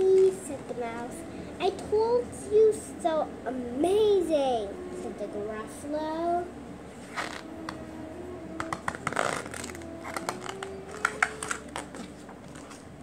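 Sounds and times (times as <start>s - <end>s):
book pages turning: 7.0s - 7.8s, 8.6s - 13.0s
paper rustle: 8.8s - 12.9s.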